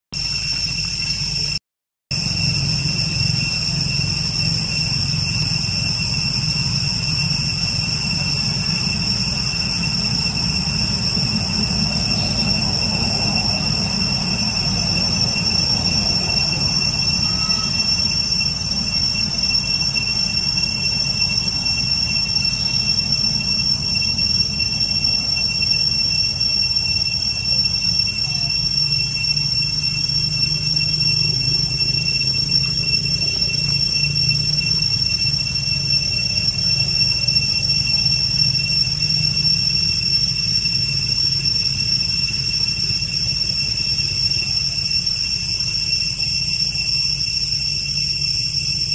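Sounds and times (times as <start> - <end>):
forest insects droning: 0.2 - 48.9
low rumble: 2.1 - 17.4.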